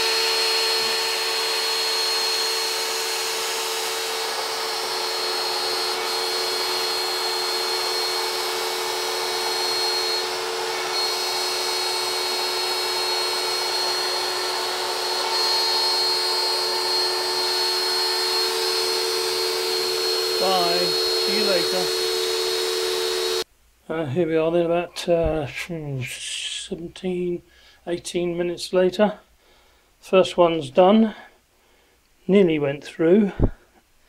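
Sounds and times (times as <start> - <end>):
router spindle high whine: 0.0 - 23.4.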